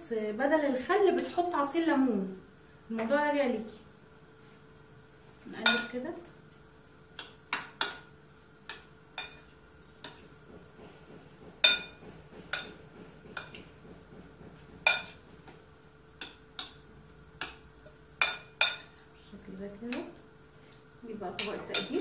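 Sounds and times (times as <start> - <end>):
utensils clinking against bowl: 5.5 - 6.0, 8.7 - 10.3, 11.6 - 13.7, 21.4 - 22.0.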